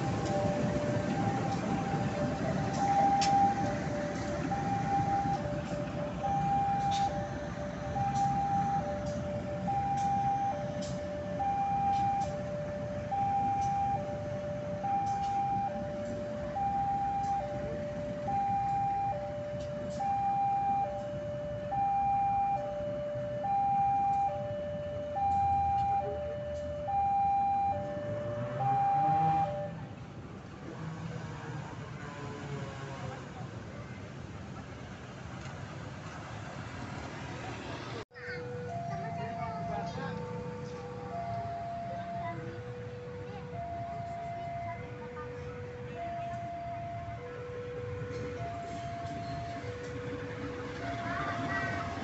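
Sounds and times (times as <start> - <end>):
locomotive rumble: 0.0 - 52.0
level crossing two-tone alarm: 4.5 - 7.2, 7.9 - 29.7, 38.2 - 52.0.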